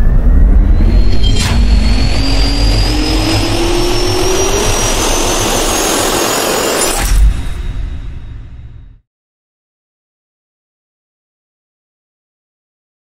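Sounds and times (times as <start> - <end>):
jet turbine spooling up: 0.0 - 8.7.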